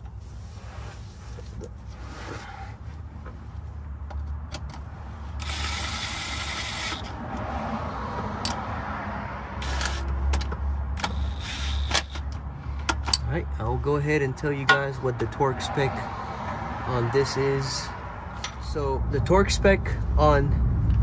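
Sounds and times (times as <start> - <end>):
cordless power tool whirring: 5.4 - 7.1, 9.6 - 10.0, 11.0 - 12.2.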